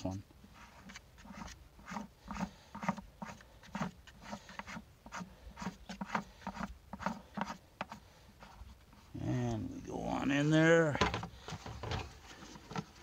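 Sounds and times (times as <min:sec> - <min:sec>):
plastic scraping on plastic: 0:00.6 - 0:09.1, 0:11.0 - 0:13.0.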